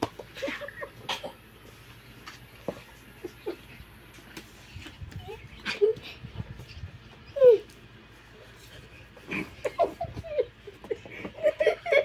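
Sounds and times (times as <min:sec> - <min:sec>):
children whimpering and squealing: 0:05.0 - 0:07.8.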